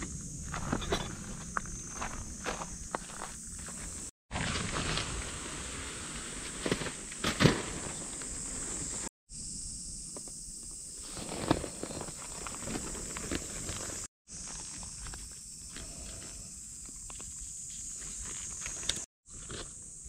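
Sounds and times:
insects droning: 0.0s - 20.0s
footsteps on gravel: 0.4s - 5.2s
tent fabric rustling: 11.0s - 14.1s.

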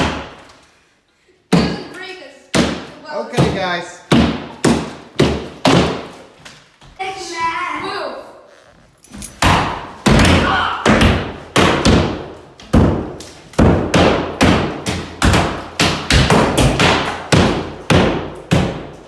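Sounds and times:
hammers striking drywall: 2.5s - 6.2s, 9.4s - 19.0s.

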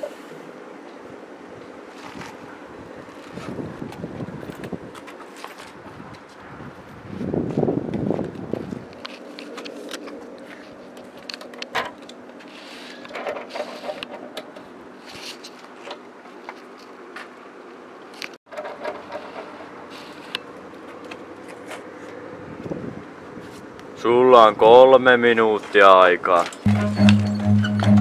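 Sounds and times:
handling clicks and rustles: 7.9s - 22.2s.

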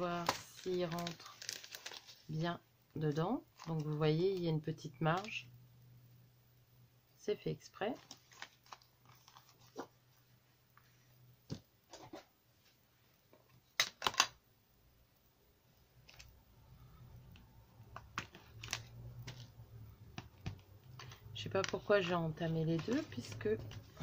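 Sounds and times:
cellophane crackle: 0.0s - 2.4s, 3.1s - 4.1s, 7.9s - 9.9s, 17.2s - 20.0s, 20.8s - 24.0s
paper and plastic bag rustling: 0.0s - 2.4s, 7.9s - 10.0s, 20.9s - 24.0s
faint low hum: 0.0s - 24.0s.

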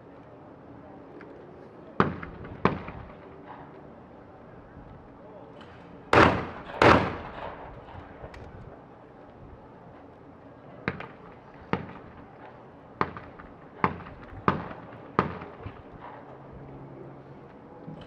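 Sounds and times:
faint shotgun reports: 0.0s - 18.0s
shotgun firing close by: 6.1s - 8.0s.

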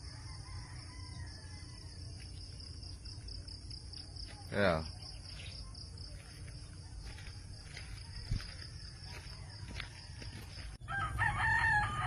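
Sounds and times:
rooster crowing: 0.0s - 2.2s, 6.8s - 12.0s
insects chirring: 0.0s - 12.0s
footsteps on a path: 1.5s - 12.0s.

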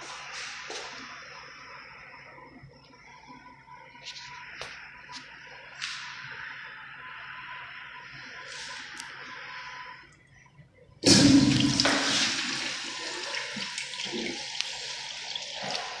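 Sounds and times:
urinal flushing: 11.0s - 16.0s.

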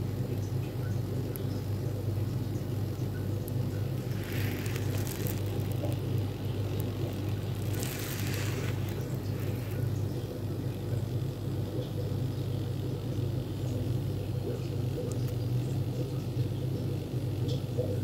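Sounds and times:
low machine hum: 0.0s - 18.0s.

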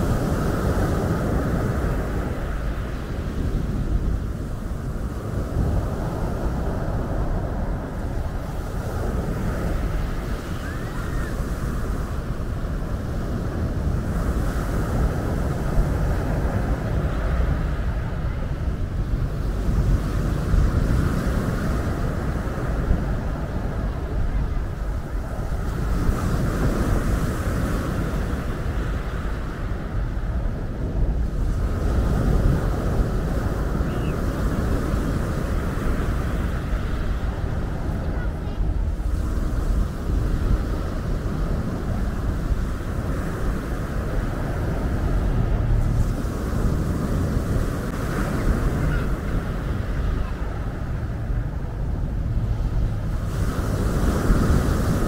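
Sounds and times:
wind buffeting microphone: 0.0s - 55.0s.

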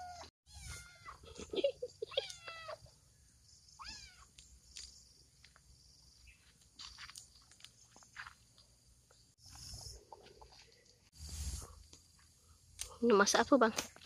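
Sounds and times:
cat meowing: 3.8s - 4.3s.

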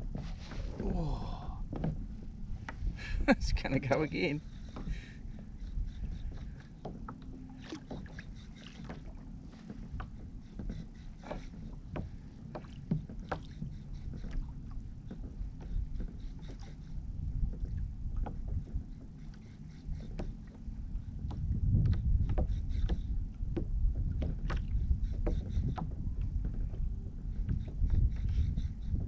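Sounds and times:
water lapping against kayak hull: 0.0s - 29.0s
wind rumble on microphone: 0.0s - 29.0s
small splashes and knocks: 6.8s - 10.7s.

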